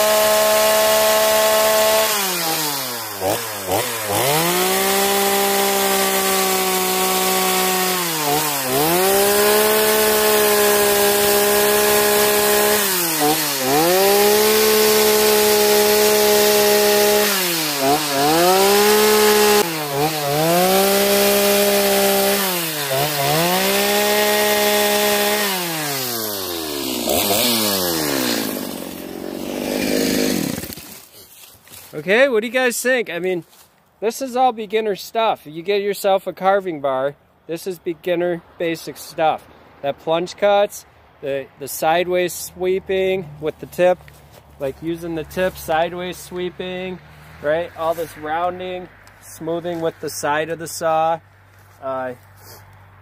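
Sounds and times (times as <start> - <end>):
chainsaw cutting wood: 0.0 - 31.9, 43.6 - 51.7.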